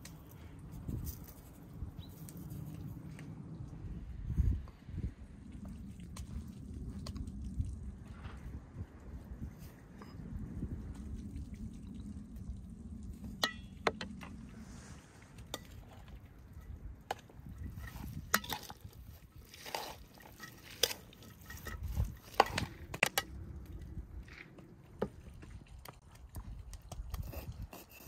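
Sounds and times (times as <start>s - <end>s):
soft rustling of mixture stirred: 5.4s - 13.4s, 14.3s - 23.0s.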